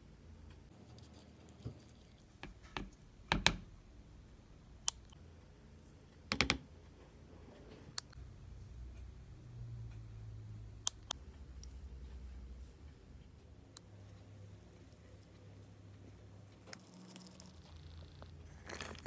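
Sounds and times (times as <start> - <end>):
oats being stirred: 16.6 - 19.0.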